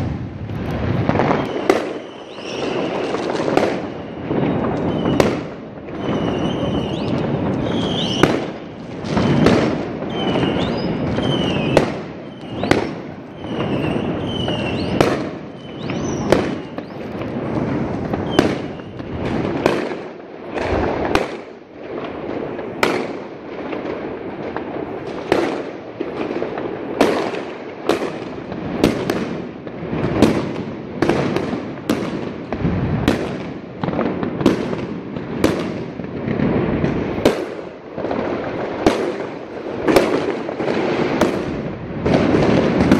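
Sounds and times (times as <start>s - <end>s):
falling firework whistles: 0.0s - 21.5s
distant firework bangs and crackle: 0.0s - 42.9s
sharp firework bangs: 0.0s - 42.9s.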